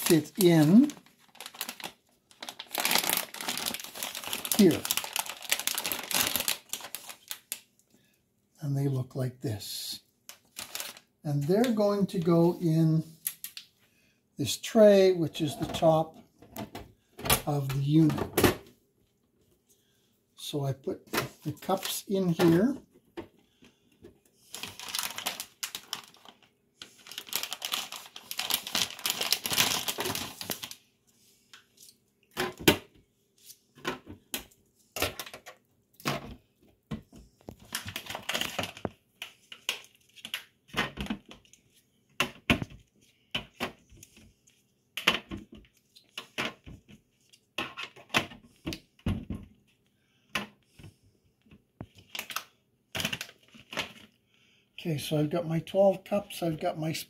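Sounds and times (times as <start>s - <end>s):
plastic crinkling and rustling: 0.0s - 7.8s, 10.3s - 12.6s, 21.0s - 23.4s, 24.0s - 30.9s, 31.5s - 49.8s, 51.8s - 54.2s.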